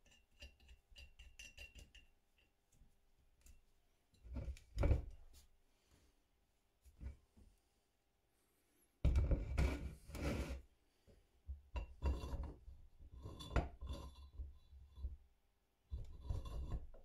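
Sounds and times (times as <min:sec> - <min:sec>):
rough scraping on hard surface: 0:09.3 - 0:10.7.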